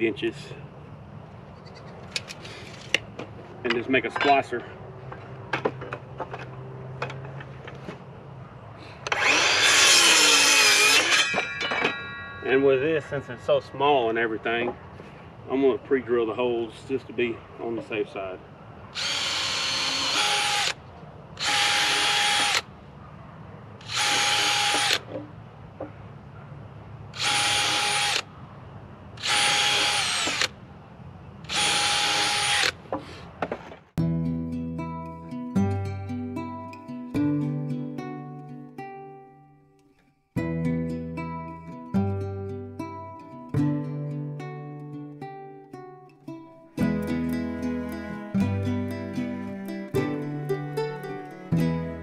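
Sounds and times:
power drill whining: 0:09.0 - 0:11.5, 0:19.0 - 0:20.8, 0:21.4 - 0:22.7, 0:23.8 - 0:25.1, 0:27.2 - 0:28.3, 0:29.2 - 0:30.5, 0:31.5 - 0:32.8
circular saw cutting wood: 0:09.0 - 0:12.6, 0:19.0 - 0:20.8, 0:21.4 - 0:22.7, 0:23.8 - 0:25.1, 0:27.2 - 0:28.3, 0:29.2 - 0:30.5, 0:31.5 - 0:32.8.

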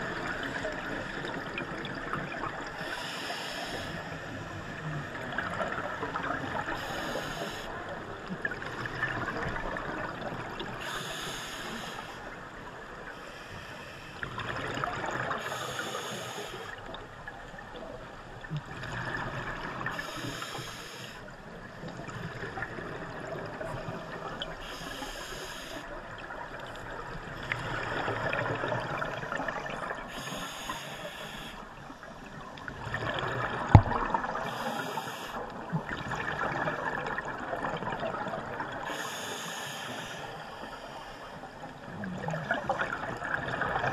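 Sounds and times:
regulator inhale hiss: 0:02.7 - 0:04.3, 0:06.6 - 0:07.8, 0:10.8 - 0:12.3, 0:13.1 - 0:14.3, 0:15.4 - 0:16.8, 0:19.9 - 0:21.3, 0:24.6 - 0:25.9, 0:30.1 - 0:32.0, 0:34.4 - 0:35.5, 0:38.8 - 0:41.7.

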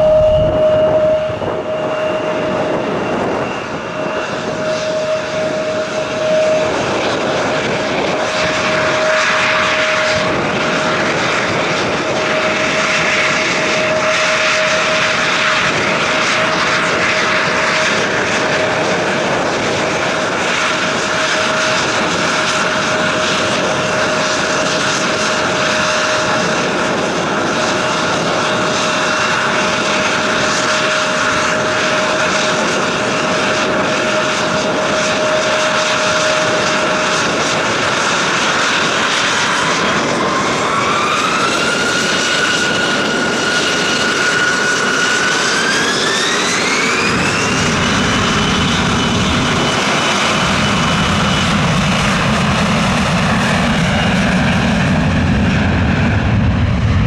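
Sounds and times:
jet engines whining: 0:00.0 - 0:57.0.

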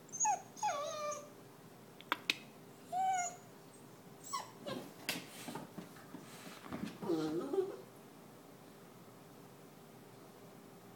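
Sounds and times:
puppy whining: 0:00.0 - 0:01.4, 0:02.8 - 0:05.0, 0:07.0 - 0:07.9.

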